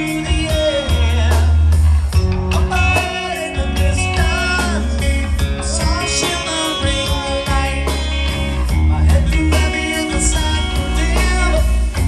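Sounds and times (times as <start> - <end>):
live rock band playing: 0.0 - 12.0.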